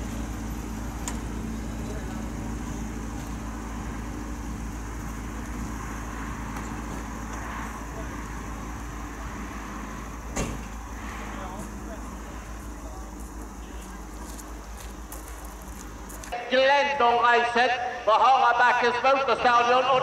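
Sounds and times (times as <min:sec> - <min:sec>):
faint voices: 0:01.5 - 0:03.4, 0:10.9 - 0:16.4.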